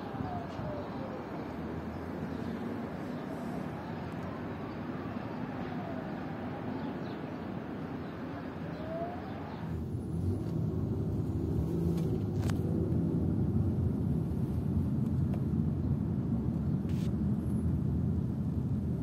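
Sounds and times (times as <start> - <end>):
car cabin road rumble: 7.5 - 18.7.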